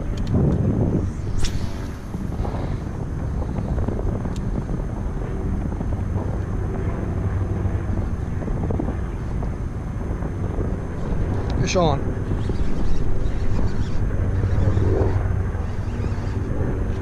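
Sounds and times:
wind buffeting microphone: 0.0s - 17.0s
fishing rod cast swish: 1.1s - 2.4s.

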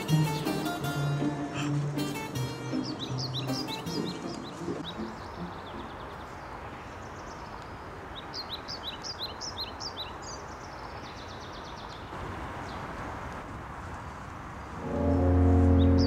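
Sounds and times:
woodland ambience hiss: 0.0s - 16.0s
small birds chirping: 1.5s - 12.9s.

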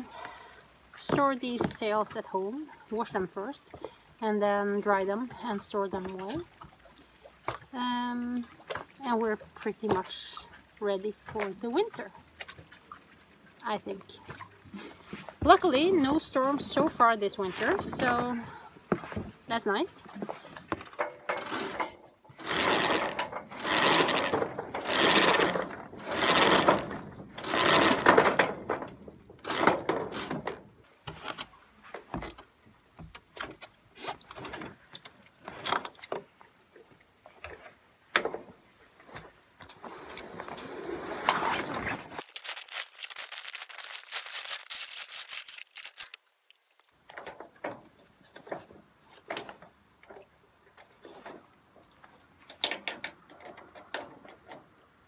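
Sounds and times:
sailboat rigging rattling and clicking: 13.6s - 36.5s, 41.4s - 55.0s.

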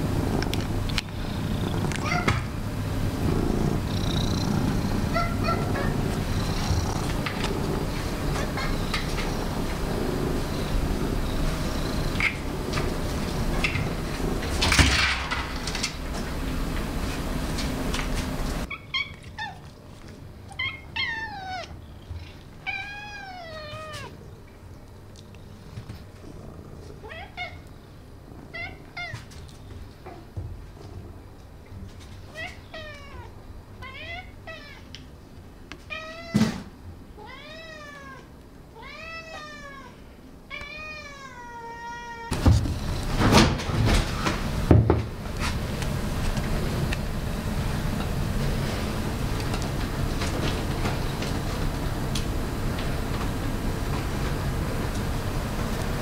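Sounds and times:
cat meowing: 1.9s - 2.5s, 5.1s - 6.0s, 20.5s - 21.8s, 22.6s - 24.2s, 37.2s - 42.4s.

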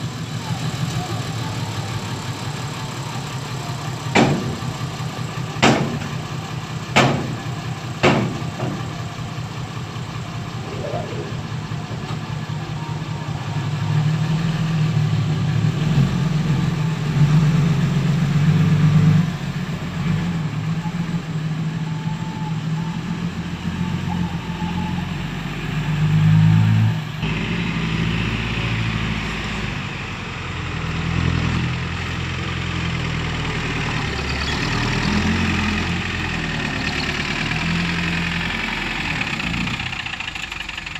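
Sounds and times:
diesel truck engines running: 0.0s - 40.9s
truck engine revving: 10.0s - 40.9s.

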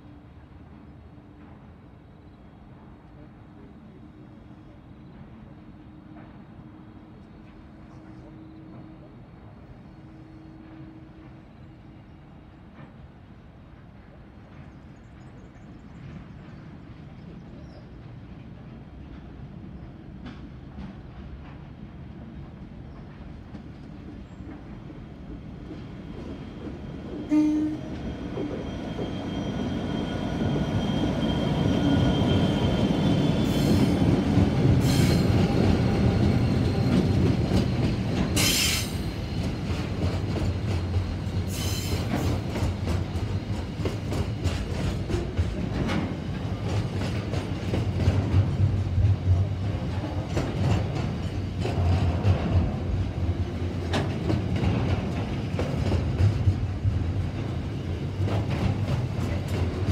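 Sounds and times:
diesel locomotive engine: 0.0s - 59.9s
train wheels clacking over rail joints: 33.2s - 59.9s.

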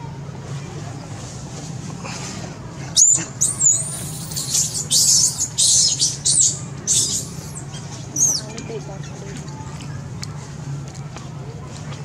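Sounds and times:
baby monkey squealing and screeching: 3.0s - 8.5s.

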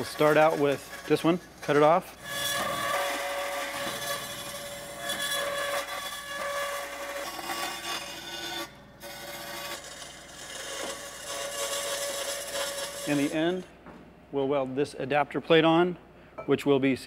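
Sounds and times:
band saw rasping through metal: 0.0s - 13.6s.

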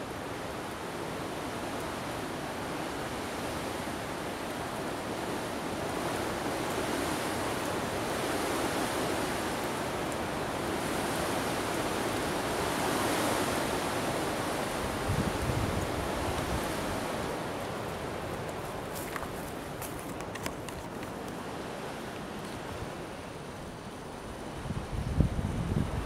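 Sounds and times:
low wind buffeting rumble: 24.5s - 26.0s.

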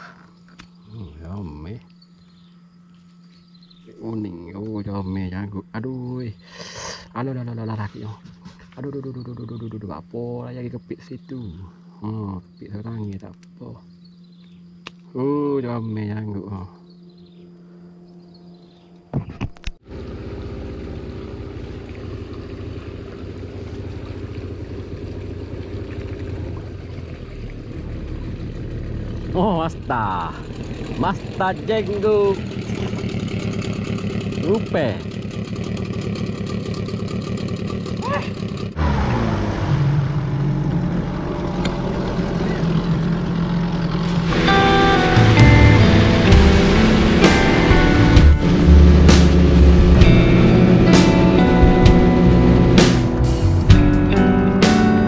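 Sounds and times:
outboard motor running: 0.0s - 55.0s
background music: 44.3s - 55.0s.

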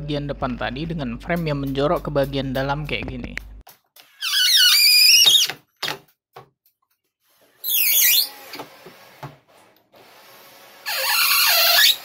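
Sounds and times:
cordless drill whining: 10.0s - 12.0s.

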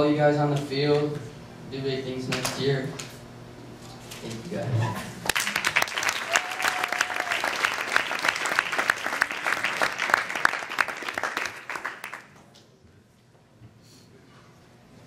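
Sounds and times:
audience applauding: 5.2s - 12.4s.

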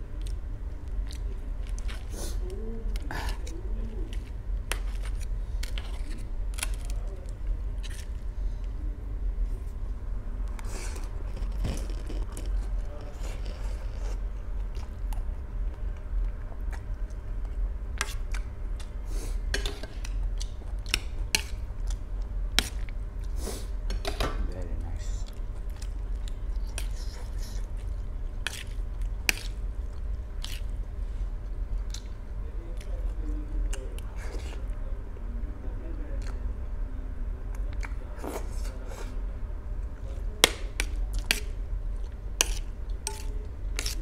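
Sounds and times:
steady low hum: 0.0s - 44.0s
chewing: 0.2s - 8.2s, 10.5s - 19.0s, 25.2s - 34.8s
fork clinking on metal plate: 42.4s - 44.0s.

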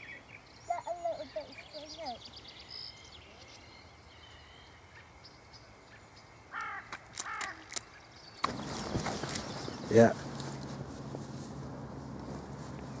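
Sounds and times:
faint birdsong: 0.0s - 13.0s
crow cawing: 6.5s - 7.7s
wind buffeting microphone: 8.4s - 13.0s.

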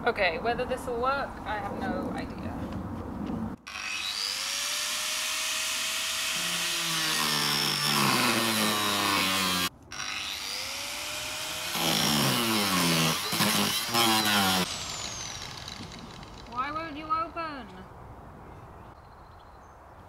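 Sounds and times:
angle grinder cutting metal: 3.7s - 16.8s.

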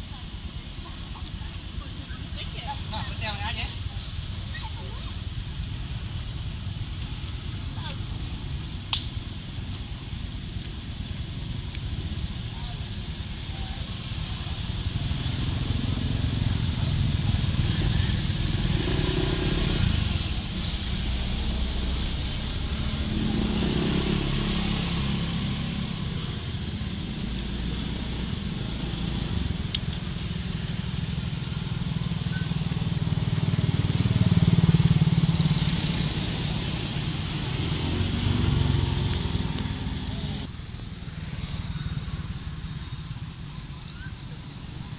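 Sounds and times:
motorcycle engines passing: 0.0s - 44.9s.

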